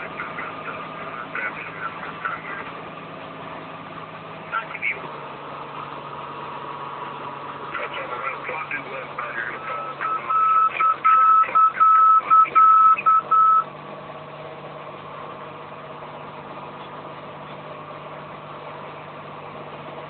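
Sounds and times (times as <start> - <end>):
piston engine drone: 0.0 - 20.0
high beacon beeping: 9.6 - 13.6.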